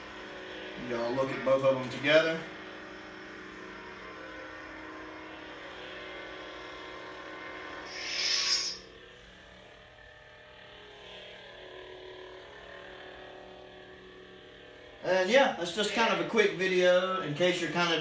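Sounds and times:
lightsabers humming: 0.0 - 18.0
lightsaber hissing retraction: 7.8 - 9.0.

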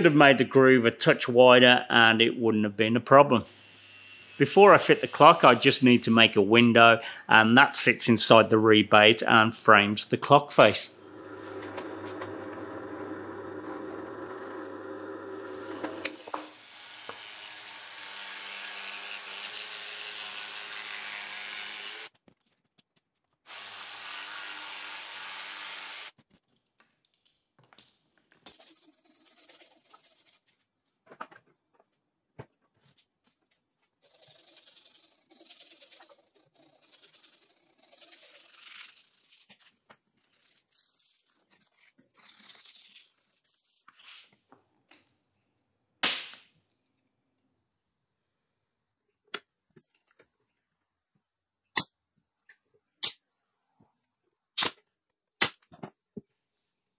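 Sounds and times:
jigsaw cutting: 11.0 - 22.1, 23.5 - 26.2
rubbing and scraping on bench: 28.5 - 30.7.

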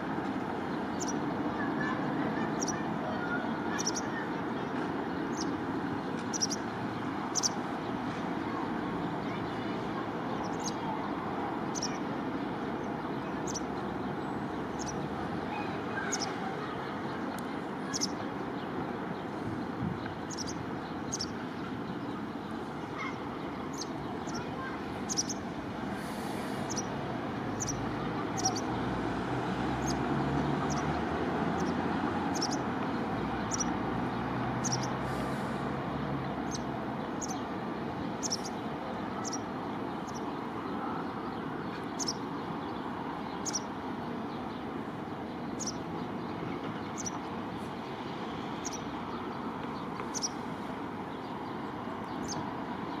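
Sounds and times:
traffic noise: 0.0 - 53.0
small bird chirping: 0.9 - 1.2, 2.6 - 2.8, 3.7 - 4.7, 6.2 - 7.7, 11.7 - 12.0, 13.1 - 16.4, 17.9 - 18.2, 20.0 - 25.4, 26.6 - 28.8, 29.8 - 31.0, 31.6 - 32.7, 33.4 - 33.8, 34.6 - 35.0, 38.2 - 38.6, 39.2 - 40.3, 41.8 - 42.3, 43.3 - 43.7, 45.5 - 47.3, 48.6 - 50.4.

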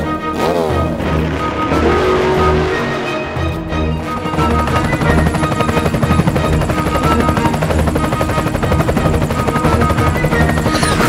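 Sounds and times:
background music: 0.0 - 11.0
helicopter rotor chopping: 0.0 - 11.0.

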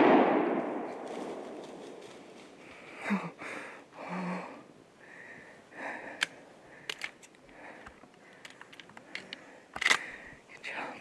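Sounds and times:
person breathing hard: 2.6 - 10.5.

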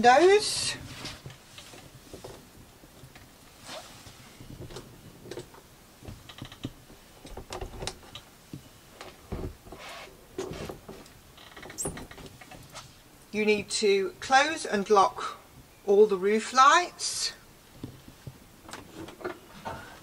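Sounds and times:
short scraping rustles: 3.6 - 4.5.

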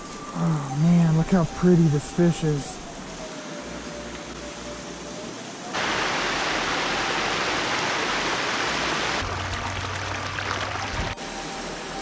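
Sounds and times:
creek water rushing: 5.8 - 11.2.

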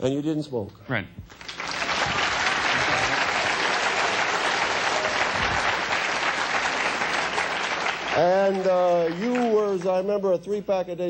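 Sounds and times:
audience applauding: 1.3 - 10.0.

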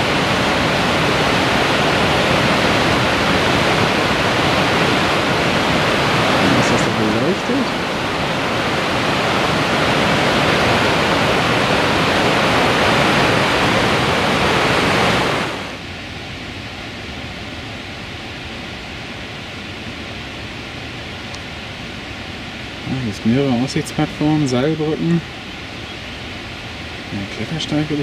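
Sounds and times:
waterfall rushing: 0.0 - 15.8.

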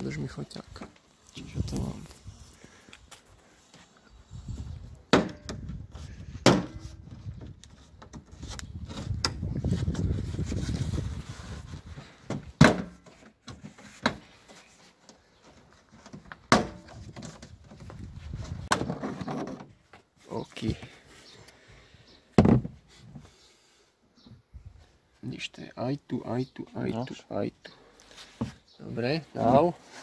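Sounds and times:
rubbing and rustling: 6.8 - 12.3, 13.0 - 20.2, 28.0 - 30.0.

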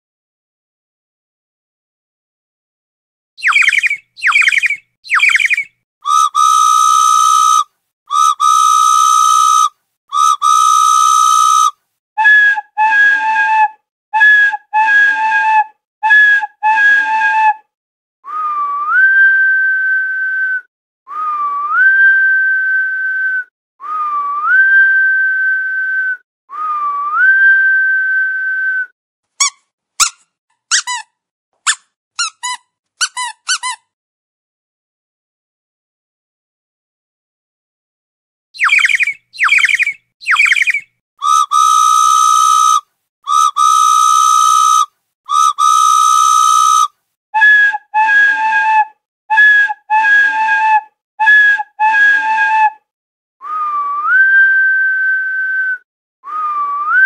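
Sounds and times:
quick chirps: 3.4 - 5.7, 38.6 - 42.8
whistle-like sound effects: 3.4 - 13.6, 18.2 - 29.0, 38.6 - 57.0.

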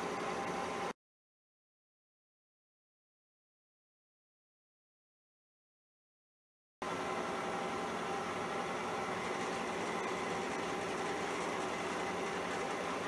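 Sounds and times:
milling machine cutting metal: 7.9 - 13.0.

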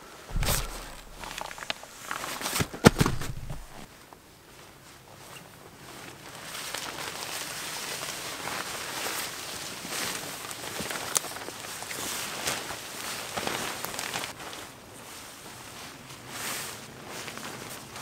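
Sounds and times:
knocks: 0.3 - 3.9
tarp crinkling: 0.3 - 3.9
tarp fabric rustling: 0.3 - 3.9, 10.8 - 17.9.

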